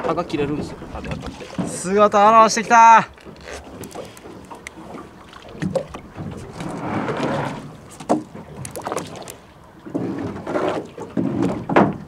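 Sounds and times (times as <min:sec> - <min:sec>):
water sloshing against boat hull: 0:00.0 - 0:12.0.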